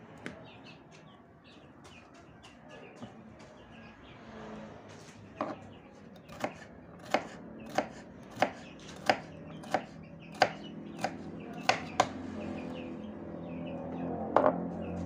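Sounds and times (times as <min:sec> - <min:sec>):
knife chopping on wooden board: 0:06.2 - 0:12.2.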